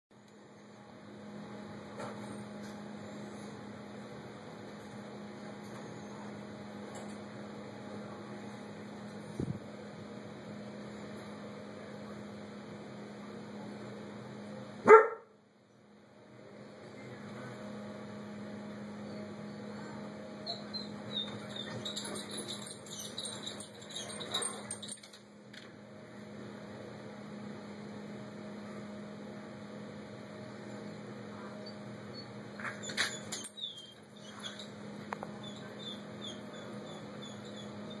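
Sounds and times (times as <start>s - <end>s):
steady low hum: 0.2s - 38.0s
small bird chirping: 32.1s - 38.0s.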